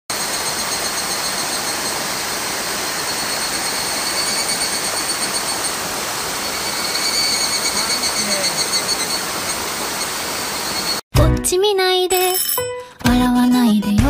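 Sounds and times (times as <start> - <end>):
high whine: 0.1 - 11.0
stream water rushing: 0.1 - 11.0.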